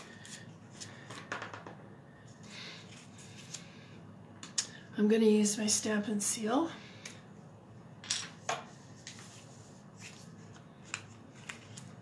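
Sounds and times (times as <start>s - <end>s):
paper rustling: 9.0s - 12.0s.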